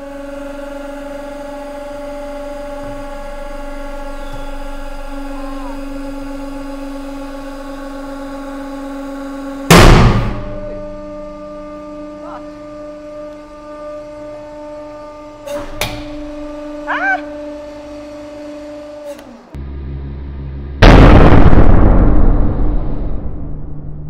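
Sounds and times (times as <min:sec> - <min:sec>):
hydraulic pump humming: 0:00.0 - 0:20.7
loud ringing bang: 0:09.6 - 0:12.2, 0:20.8 - 0:24.0.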